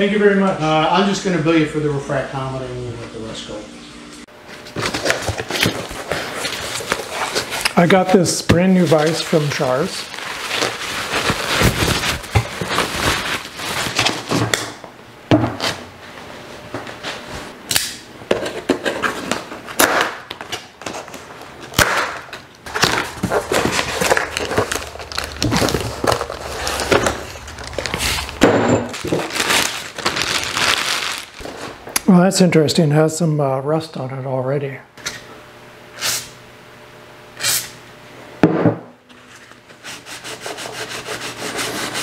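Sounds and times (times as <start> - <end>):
foam and cardboard rustling: 4.6 - 14.6, 22.7 - 31.8.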